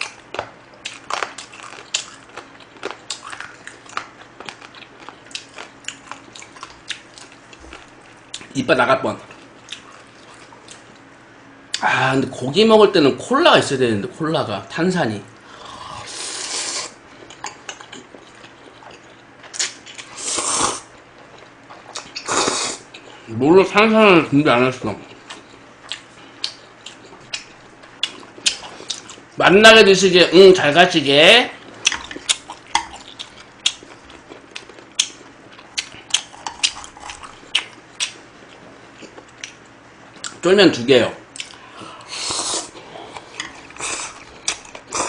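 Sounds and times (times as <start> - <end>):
chewing clicks: 0.0 - 8.5, 31.6 - 38.2, 41.3 - 41.6, 43.1 - 45.0
slurping noodles: 15.5 - 17.0, 20.0 - 20.9, 22.2 - 22.9, 42.0 - 44.3.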